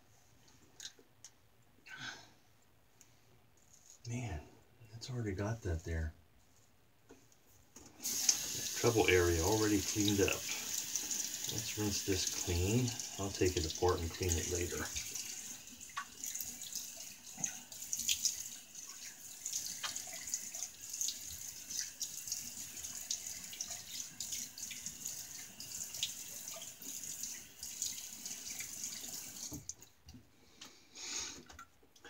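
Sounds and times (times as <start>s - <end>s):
sink tap running: 8.0s - 29.6s.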